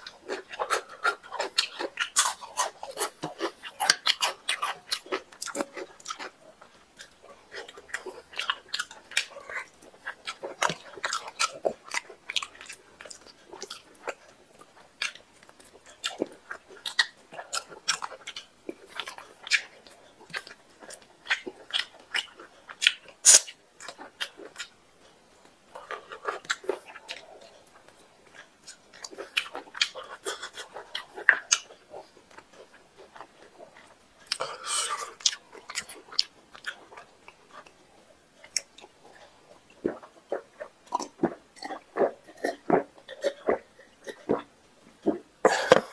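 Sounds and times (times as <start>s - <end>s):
lip smacks: 0.0s - 24.7s, 38.4s - 45.9s
chewing: 0.0s - 45.9s
wet mouth clicks: 20.3s - 24.7s.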